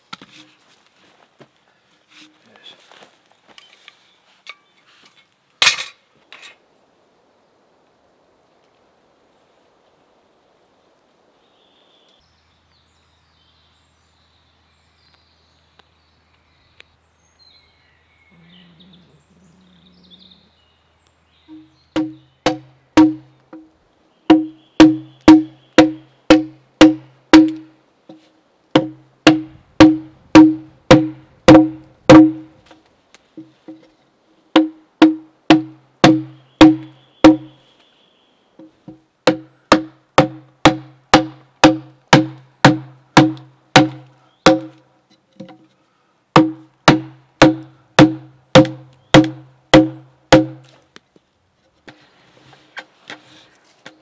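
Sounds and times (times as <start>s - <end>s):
mallet striking wood chisel: 21.5s - 23.7s, 24.3s - 27.7s, 28.8s - 32.5s, 34.6s - 37.5s, 38.9s - 44.8s, 46.4s - 50.7s.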